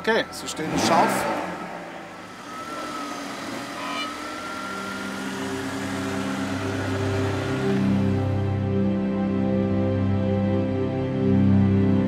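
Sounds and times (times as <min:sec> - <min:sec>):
race car engine running: 0:00.0 - 0:08.9
faint rising whine: 0:01.6 - 0:08.9.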